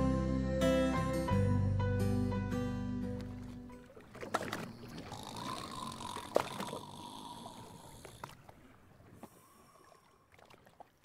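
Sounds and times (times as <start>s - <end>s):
sea water lapping: 3.1s - 11.0s.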